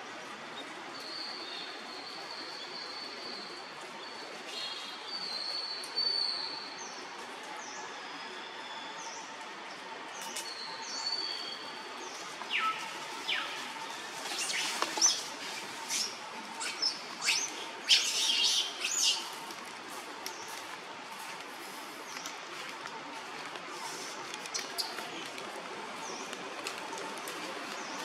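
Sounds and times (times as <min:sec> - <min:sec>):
birds chirping: 0:10.2 - 0:19.5.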